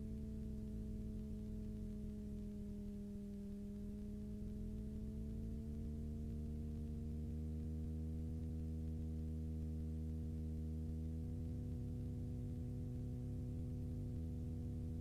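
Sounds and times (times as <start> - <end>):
aircraft engine and propeller droning: 0.0 - 15.0.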